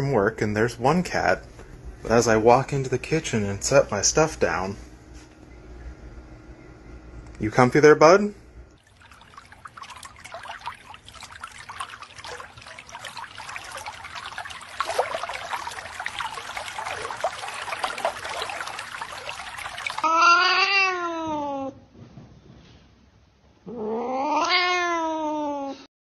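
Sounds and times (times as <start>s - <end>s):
pet water fountain trickling: 2.1s - 4.7s, 8.7s - 20.3s
kitten pawing water splashes: 8.8s - 20.3s
cat meowing: 20.0s - 21.6s, 23.9s - 25.5s.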